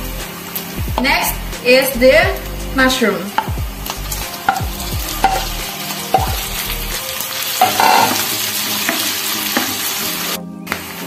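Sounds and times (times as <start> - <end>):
bacon sizzling in a frying pan: 0.0 - 11.0
spatula knocking against pan: 4.5 - 5.5, 7.6 - 8.2
wooden spatula scraping: 7.4 - 10.0.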